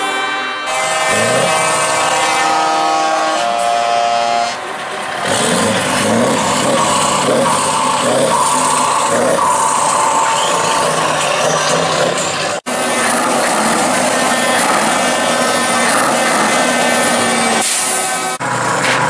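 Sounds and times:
truck air horns: 0:00.0 - 0:19.0
truck diesel engine pulling away: 0:04.6 - 0:19.0.

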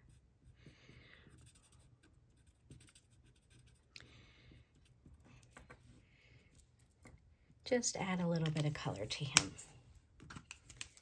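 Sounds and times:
marker scratching on cardstock: 0:01.3 - 0:03.9.

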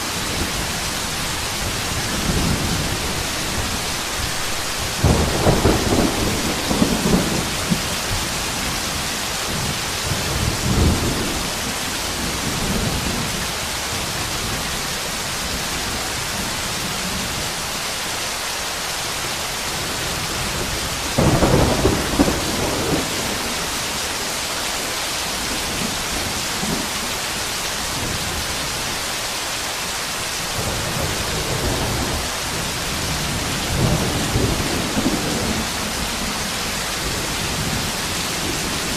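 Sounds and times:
thunder rumbles: 0:00.0 - 0:14.6, 0:19.7 - 0:24.2, 0:30.5 - 0:38.9
heavy rain downpour: 0:00.0 - 0:38.9.

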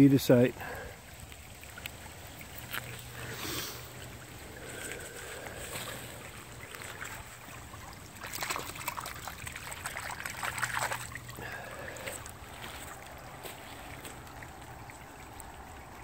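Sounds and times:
faint steady hum: 0:00.0 - 0:16.0
hand splashing in shallow water: 0:02.4 - 0:14.2.

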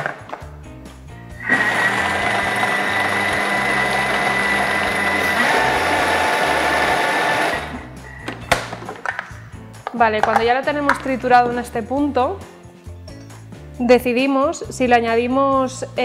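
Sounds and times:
food processor motor whining: 0:01.4 - 0:07.9.

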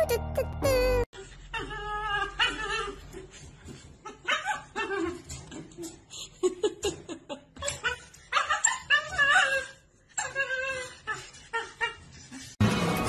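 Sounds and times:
music: 0:00.0 - 0:01.0, 0:12.6 - 0:13.0
dog whining: 0:00.0 - 0:03.3, 0:04.0 - 0:06.0, 0:07.6 - 0:12.5.

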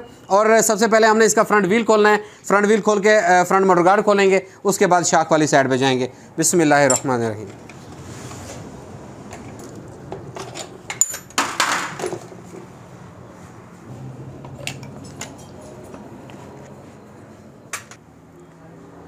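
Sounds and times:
metal tools clinking and rattling: 0:06.8 - 0:07.8, 0:09.3 - 0:12.4, 0:14.5 - 0:16.1.

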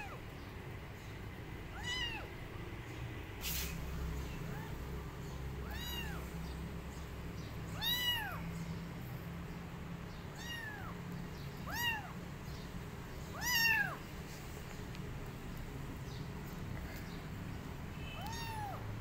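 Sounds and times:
kitten mewing: 0:01.7 - 0:02.3, 0:05.6 - 0:06.3, 0:07.8 - 0:08.4, 0:10.3 - 0:11.0, 0:11.6 - 0:12.2, 0:13.3 - 0:14.0, 0:18.2 - 0:18.8.

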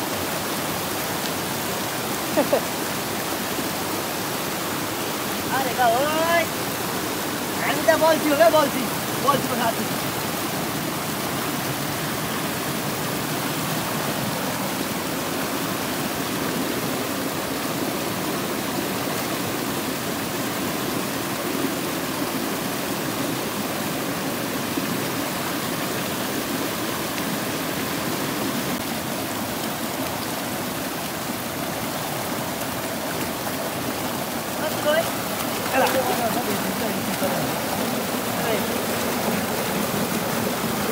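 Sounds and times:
mountain stream rushing: 0:00.0 - 0:40.9.

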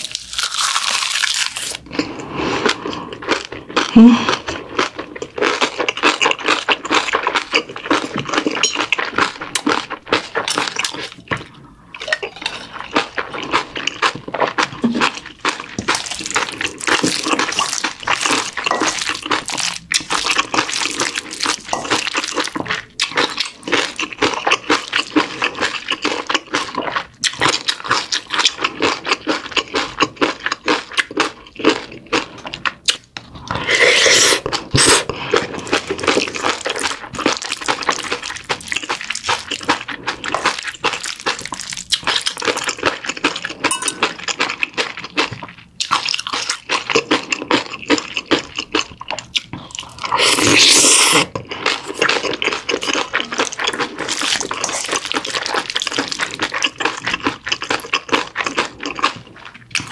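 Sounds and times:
spoon mashing food in metal bowl: 0:43.7 - 0:44.3.

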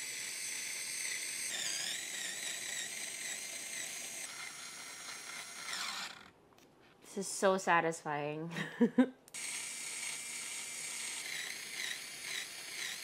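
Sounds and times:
electric screwdriver motor whining: 0:00.0 - 0:06.3, 0:09.3 - 0:13.0.

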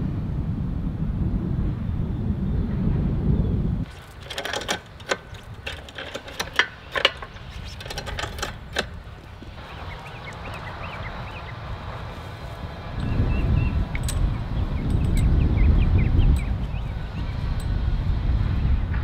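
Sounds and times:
clicking and rattling: 0:03.9 - 0:11.2, 0:13.8 - 0:15.4, 0:16.3 - 0:17.8.

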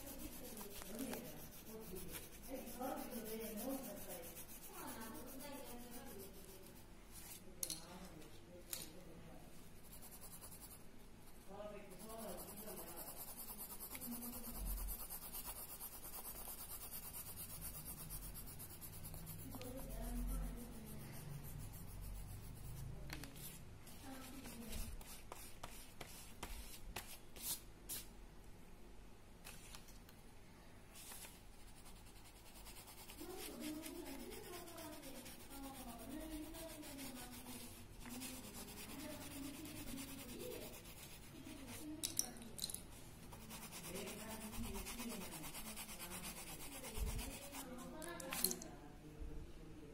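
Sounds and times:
pencil scratching on paper: 0:00.0 - 0:07.4, 0:09.8 - 0:28.0, 0:31.0 - 0:42.0, 0:43.3 - 0:48.0.

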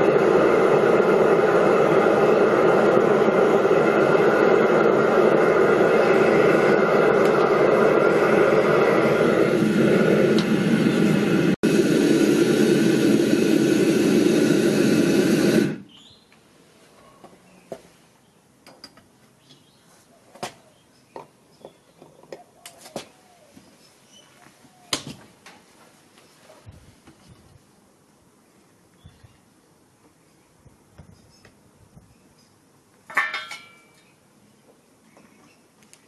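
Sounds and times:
gas burner rushing: 0:00.0 - 0:16.0
metal tools clinking on metal: 0:33.1 - 0:34.2.

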